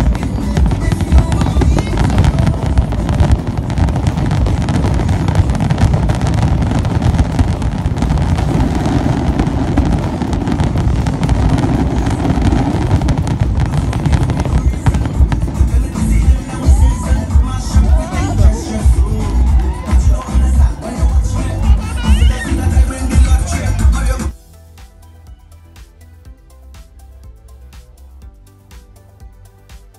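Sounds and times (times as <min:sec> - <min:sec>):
fireworks booming and crackling: 0:00.0 - 0:23.5.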